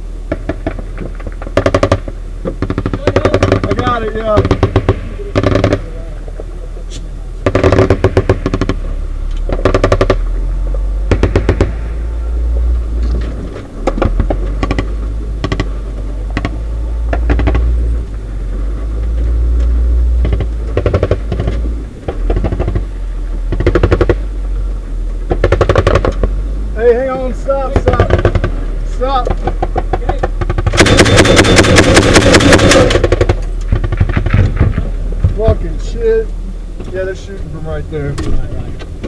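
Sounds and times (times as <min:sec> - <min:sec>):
vehicle engine rumbling: 0:00.0 - 0:39.0
grenade launcher firing bursts: 0:01.5 - 0:06.0, 0:07.4 - 0:08.9, 0:09.5 - 0:10.4, 0:11.0 - 0:11.9, 0:25.3 - 0:26.2, 0:30.4 - 0:34.9.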